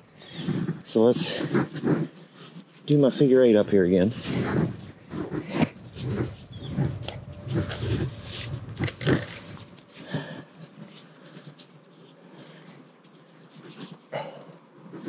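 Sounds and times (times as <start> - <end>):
rope rustling and rubbing: 0.3 - 6.4, 9.9 - 14.1.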